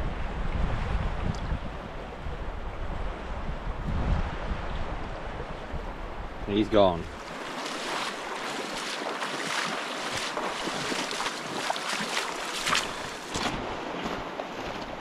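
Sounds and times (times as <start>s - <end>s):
river current rushing: 6.6s - 15.0s
boots splashing through water: 7.1s - 15.0s.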